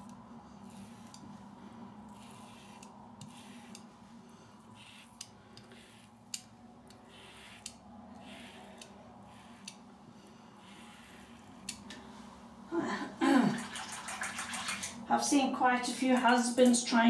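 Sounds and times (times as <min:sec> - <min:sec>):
razor scraping through lather: 0:00.0 - 0:01.3, 0:02.0 - 0:09.8, 0:10.6 - 0:11.8.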